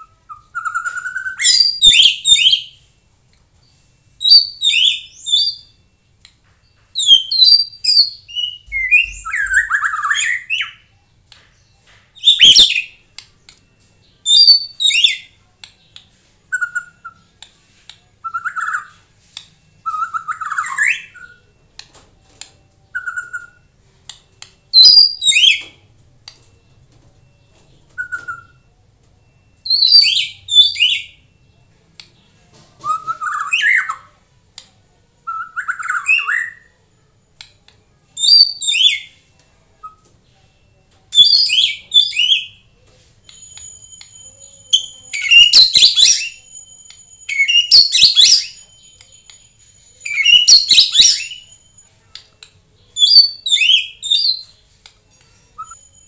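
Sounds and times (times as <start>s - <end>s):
songbird singing: 0.0s - 3.0s, 3.6s - 19.1s, 22.4s - 34.2s, 44.1s - 54.6s.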